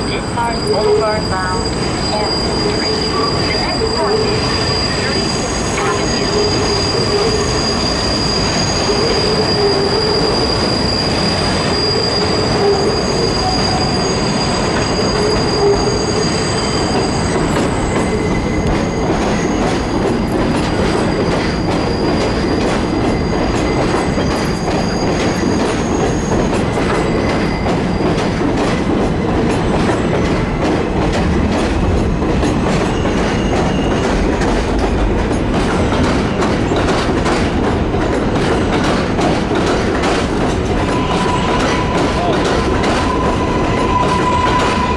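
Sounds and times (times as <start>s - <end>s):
high wheel squeal: 0.0s - 28.2s, 32.7s - 34.2s, 40.8s - 44.9s
subway train rumbling on rails: 0.0s - 44.9s
wheels clicking over rails: 16.9s - 44.9s.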